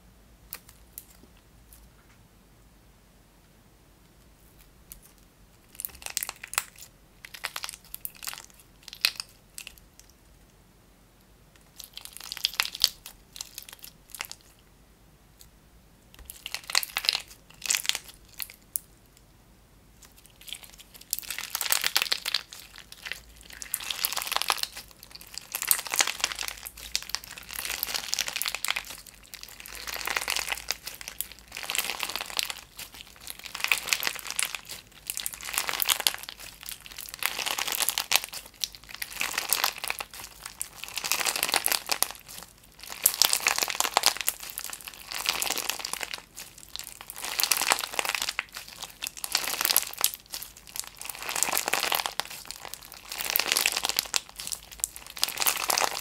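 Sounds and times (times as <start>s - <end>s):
slime crinkling and crackling: 4.9s - 10.2s, 11.6s - 14.6s, 16.1s - 18.8s, 20.0s - 56.0s.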